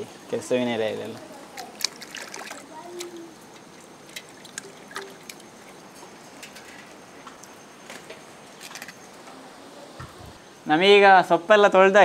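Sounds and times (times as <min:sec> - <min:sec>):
soft steady hiss: 0:00.0 - 0:12.0
light water splashes: 0:01.0 - 0:06.6
water lapping and dripping: 0:01.1 - 0:07.6.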